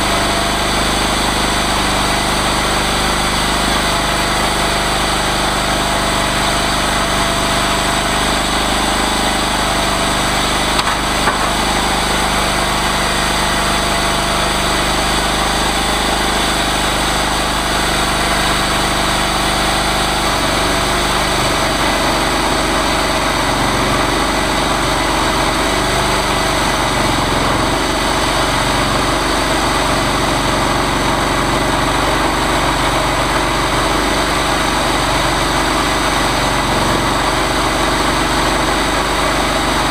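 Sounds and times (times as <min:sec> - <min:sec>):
chainsaw mill engine running: 0:00.0 - 0:39.9.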